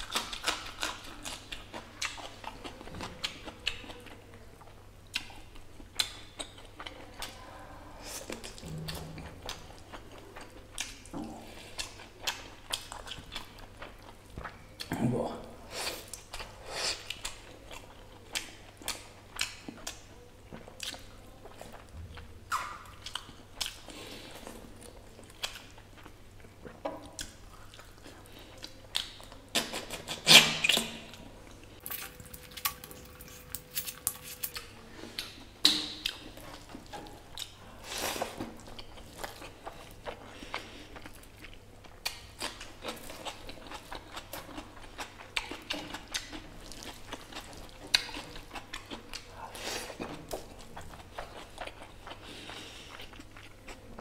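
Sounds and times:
wet chewing: 0.0s - 14.9s, 15.8s - 54.0s
squishing of rice and meat: 0.0s - 54.0s
mouth smacks: 22.5s - 23.3s.

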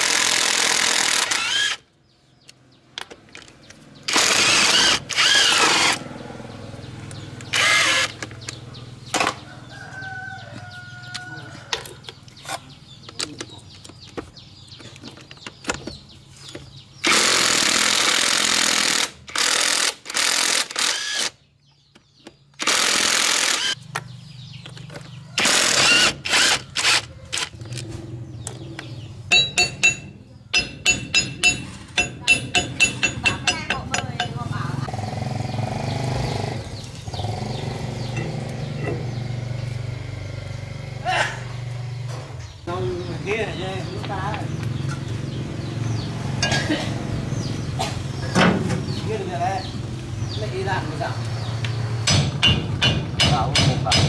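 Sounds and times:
impact wrench hammering: 29.3s - 34.6s, 52.0s - 54.0s
metal clinks and knocks: 29.3s - 34.6s.

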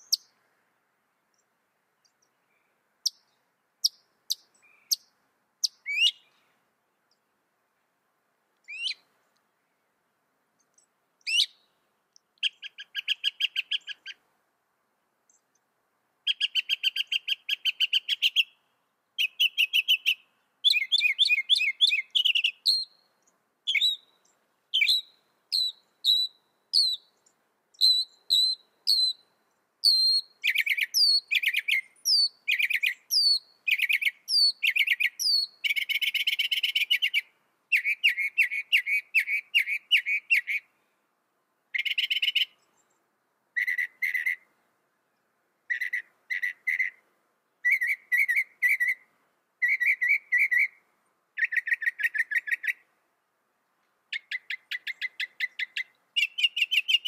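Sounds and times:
mockingbird singing varied phrases: 0.0s - 0.3s, 2.0s - 6.4s, 8.6s - 9.1s, 10.8s - 11.8s, 12.4s - 14.2s, 16.2s - 40.7s, 41.7s - 44.5s, 45.6s - 52.9s, 54.1s - 57.0s.

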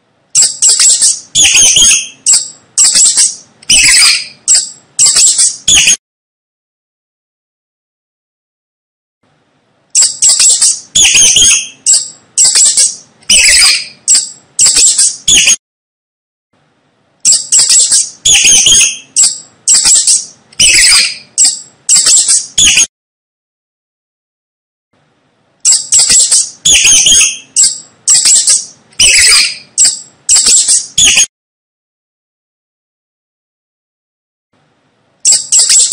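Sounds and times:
mice squeaking: 0.3s - 6.0s, 9.9s - 15.6s, 17.2s - 22.9s, 25.6s - 31.3s, 35.2s - 35.9s.

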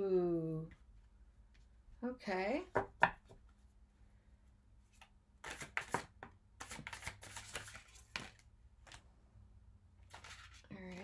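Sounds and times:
cards being shuffled: 4.9s - 9.0s, 10.0s - 11.0s.

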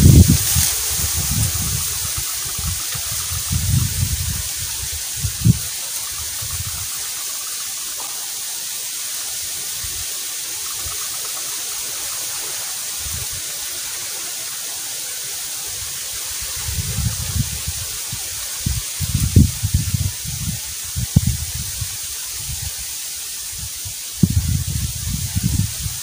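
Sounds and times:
steady rushing hiss: 0.0s - 26.0s.

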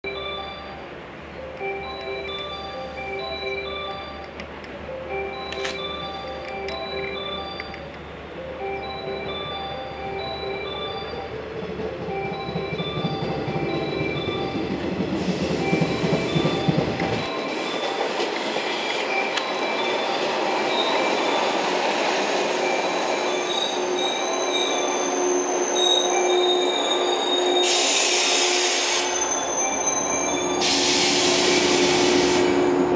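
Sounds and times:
rumble of train cars: 0.0s - 32.9s
train brakes squealing: 7.0s - 32.9s
loud air hisses: 27.6s - 29.5s, 30.6s - 32.8s.

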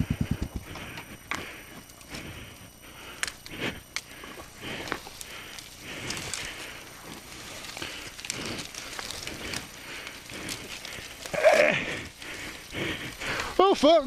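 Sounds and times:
branch scraping over leaves: 4.4s - 14.0s
grunt of effort: 10.3s - 13.5s.

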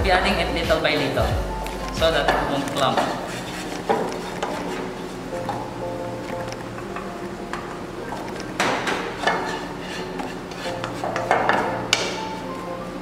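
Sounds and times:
soft background music: 0.0s - 13.0s
wooden spoon scraping a pan: 2.3s - 5.8s, 6.7s - 12.7s.

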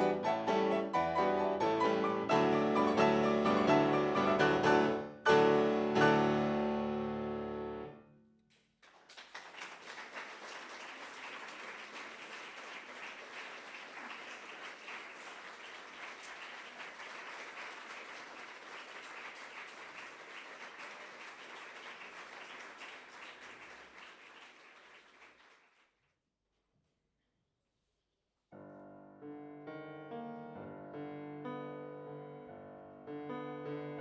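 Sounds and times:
audience applauding: 8.5s - 25.9s.

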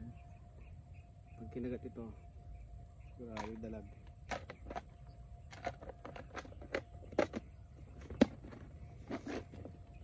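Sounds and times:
fishing tackle clicks and knocks: 3.3s - 9.8s.

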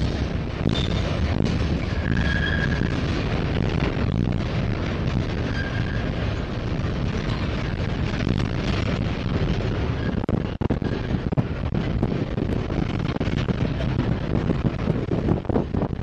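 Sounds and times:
freight cars rumbling on rails: 0.0s - 16.0s
faint wheel squeal: 2.0s - 2.9s, 5.4s - 6.2s.

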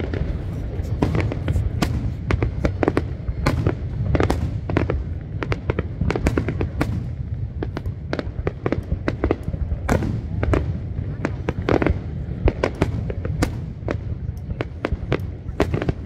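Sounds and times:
fireworks bangs and cracks: 0.0s - 16.0s
steady low rumble: 0.0s - 16.0s.

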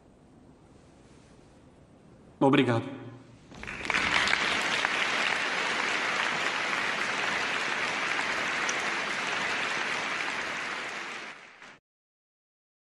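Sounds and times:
large audience applauding: 3.5s - 11.8s.

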